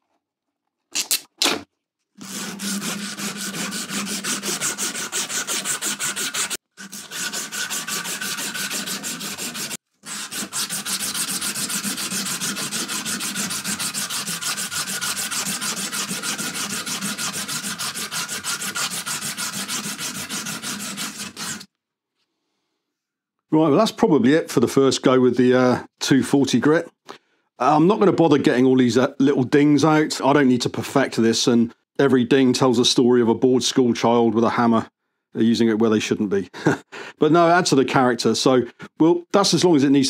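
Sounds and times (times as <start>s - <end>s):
abrasive strip rubbing metal: 2.2s - 21.7s.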